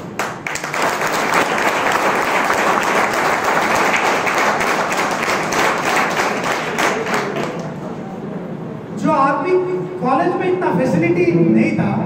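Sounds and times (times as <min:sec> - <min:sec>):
audience clapping: 0:00.0 - 0:07.8.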